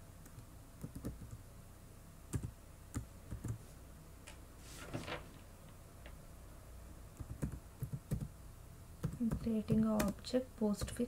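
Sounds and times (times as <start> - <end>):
low steady hum: 0.0 - 11.0
soft hiss: 0.0 - 11.0
computer keyboard keystrokes: 0.2 - 1.4, 2.3 - 3.6, 7.2 - 8.3, 9.0 - 10.2.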